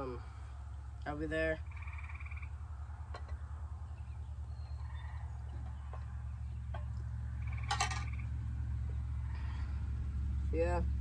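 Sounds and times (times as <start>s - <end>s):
steady low rumble: 0.0s - 11.0s
rapidly pulsed animal call: 1.6s - 10.1s.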